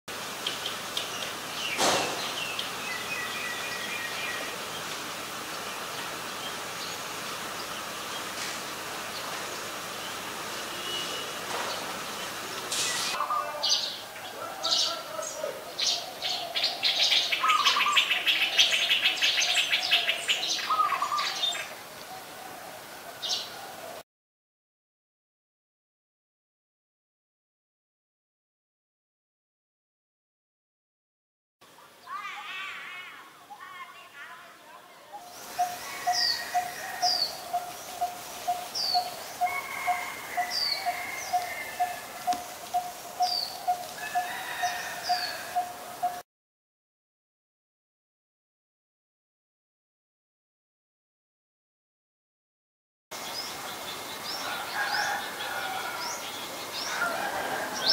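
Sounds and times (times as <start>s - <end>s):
bird chirping: 0.4s - 8.4s, 9.1s - 21.8s, 35.2s - 46.2s.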